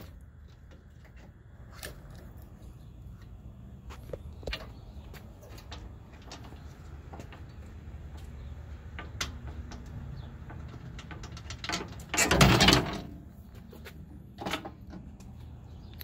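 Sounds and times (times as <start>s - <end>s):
metal scraping rattle: 4.5s - 15.4s.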